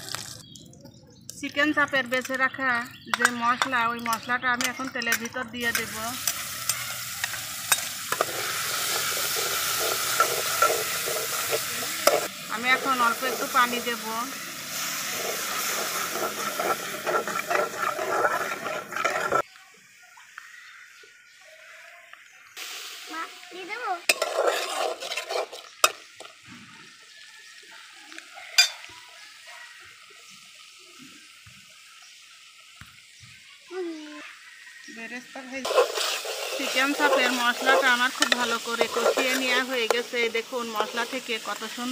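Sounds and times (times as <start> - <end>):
marinade sizzling in hot oil: 0.0 - 41.9
spoon scraping a pan: 2.2 - 19.4, 24.1 - 26.4, 28.6 - 28.9, 35.6 - 41.9
spatula clinking against pan: 28.6 - 28.9.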